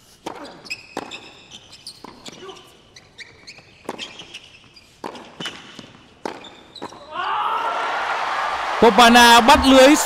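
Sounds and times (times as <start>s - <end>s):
racket striking tennis ball: 0.2s - 2.5s, 3.8s - 4.4s, 5.0s - 7.0s
tennis ball bouncing: 0.2s - 2.5s, 3.4s - 7.0s.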